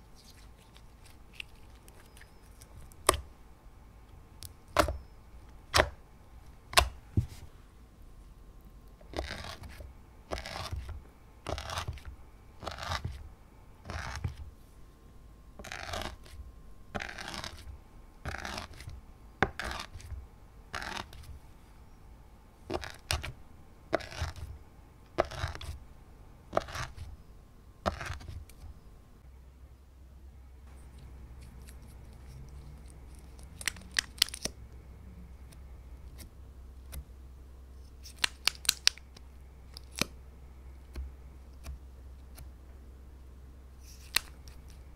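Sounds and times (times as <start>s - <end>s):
stick squishing across slime: 9.0s - 13.2s, 17.0s - 20.1s, 22.7s - 24.5s, 25.2s - 25.8s.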